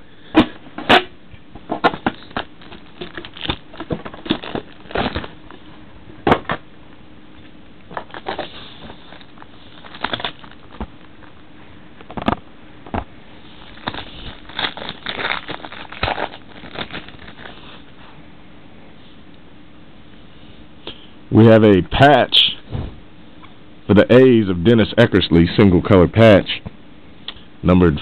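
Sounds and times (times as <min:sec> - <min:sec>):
packaging rustling: 0:01.7 - 0:05.7, 0:07.9 - 0:11.4, 0:12.0 - 0:17.9.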